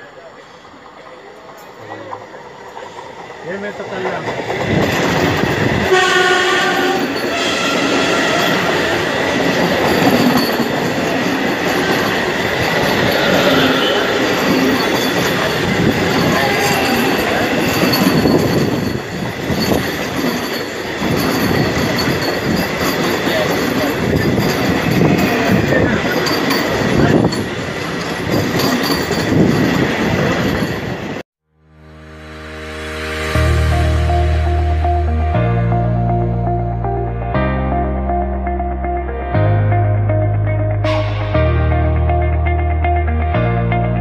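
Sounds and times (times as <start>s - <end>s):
train wheels rushing on rail: 0.0s - 31.2s
high wheel squeal: 5.2s - 31.2s
outro music: 31.5s - 44.0s.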